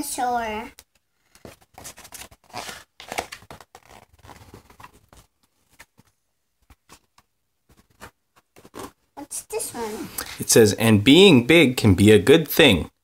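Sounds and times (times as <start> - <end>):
book pages rustling and turning: 0.8 - 9.0.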